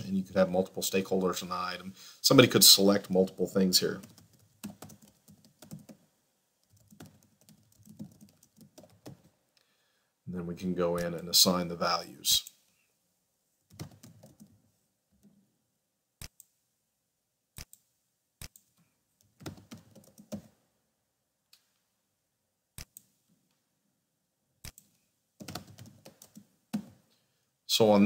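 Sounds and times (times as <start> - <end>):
faint keyboard typing: 3.8 - 9.4, 13.6 - 15.4, 17.6 - 20.6, 24.6 - 27.2.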